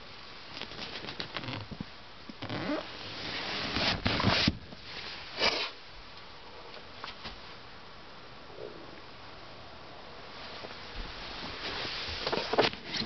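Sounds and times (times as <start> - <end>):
handling noise rubbing and scraping: 2.4 - 5.8, 10.4 - 13.0.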